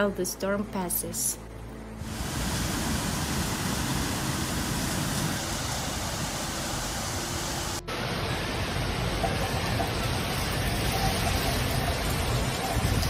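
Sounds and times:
heavy rain in strong wind: 2.0 - 13.0.

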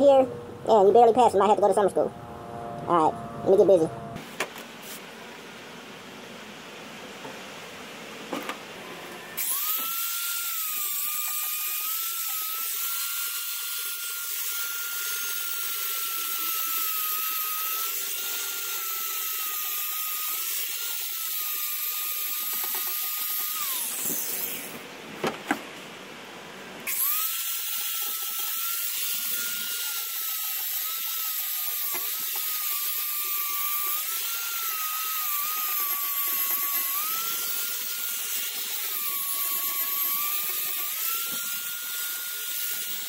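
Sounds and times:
angle grinder whining: 8.7 - 24.9, 26.8 - 43.0.

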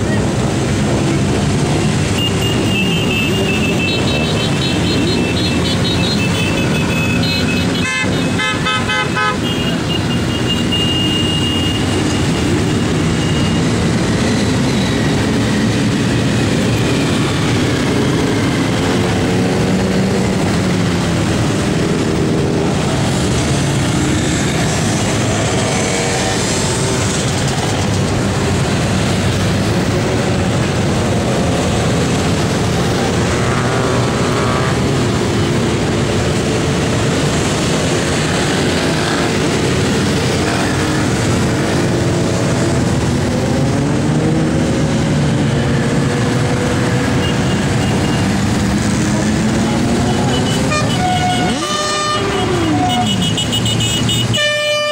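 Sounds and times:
horns tooting: 2.0 - 13.8, 47.1 - 54.9.

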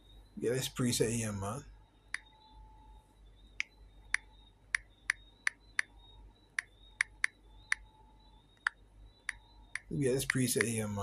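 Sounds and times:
smartphone key-tap clicks: 6.6 - 7.9, 8.6 - 10.8.

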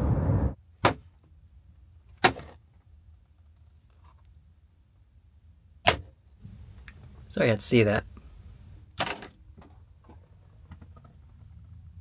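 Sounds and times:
steady noise: 0.0 - 0.6.

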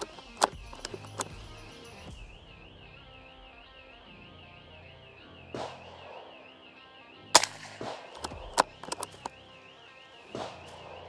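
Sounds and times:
small cracks and clicks: 0.0 - 1.4, 7.4 - 9.4
background music with high tone: 0.0 - 11.0
rifle shots: 5.6 - 6.5, 7.4 - 9.4, 10.2 - 11.0.

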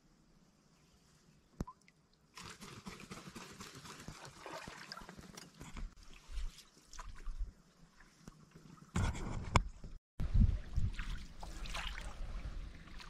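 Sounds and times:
water swishing off paddles: 10.7 - 13.0.

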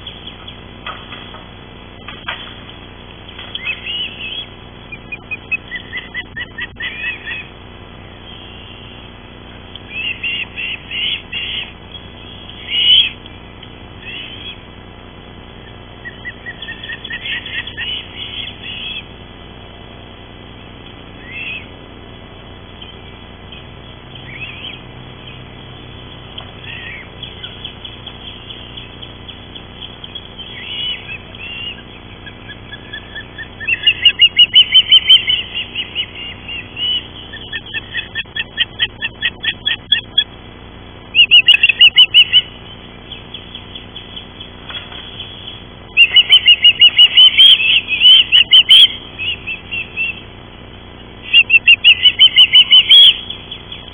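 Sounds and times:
birds chirping: 0.0 - 53.9.

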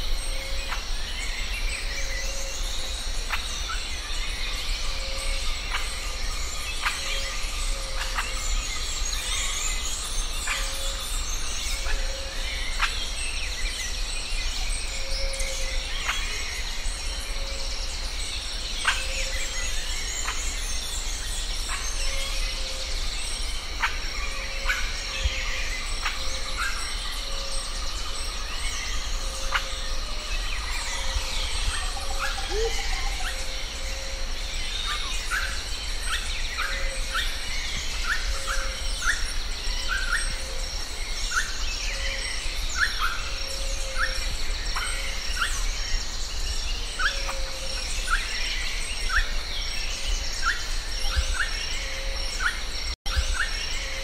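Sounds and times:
bird chirping: 0.0 - 54.0
birds calling: 14.9 - 54.0.

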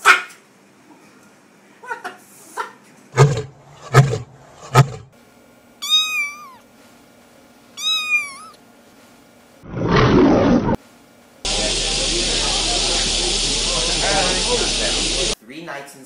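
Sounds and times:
kitten meowing: 5.8 - 6.6, 7.8 - 8.6.

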